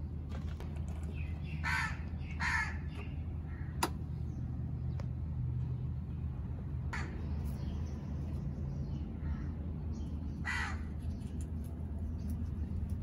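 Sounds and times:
crow cawing: 1.6 - 2.8, 10.4 - 10.9.

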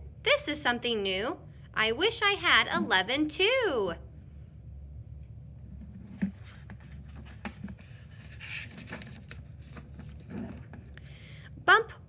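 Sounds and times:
low room hum: 0.0 - 12.0
book pages turning: 5.7 - 11.0.

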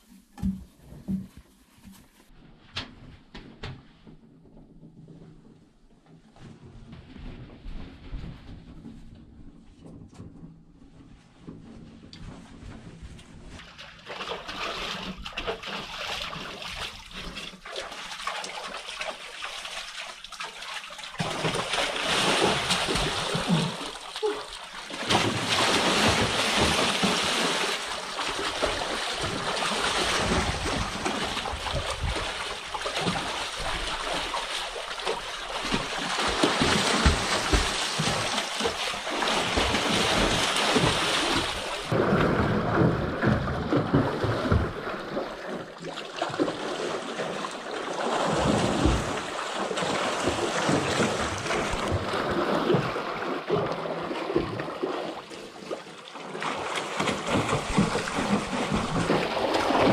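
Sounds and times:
water splashing in a pool: 13.5 - 59.9.

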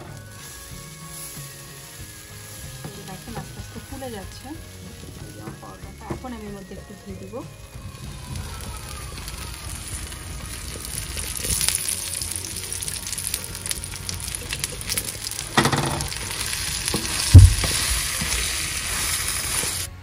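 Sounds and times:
flatbread sizzling in hot pan: 0.0 - 20.0
thump: 17.0 - 18.0.

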